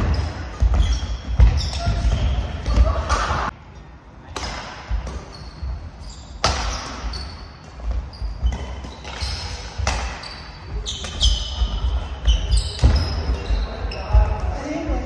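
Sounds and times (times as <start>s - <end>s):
sneakers squeaking on wooden floor: 0.0s - 3.5s, 4.9s - 15.0s
racket hitting shuttlecock: 4.3s - 5.3s, 6.4s - 13.4s.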